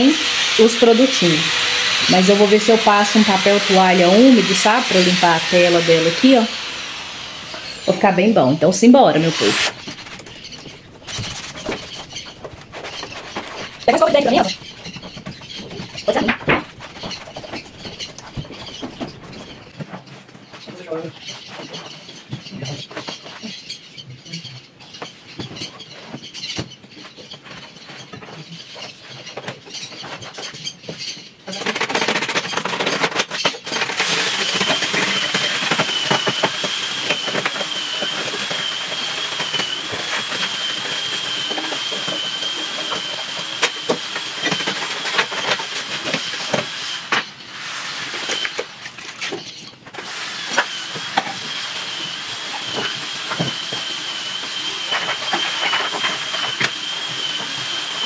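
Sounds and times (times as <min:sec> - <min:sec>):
handling noises: 0:08.9 - 0:20.4.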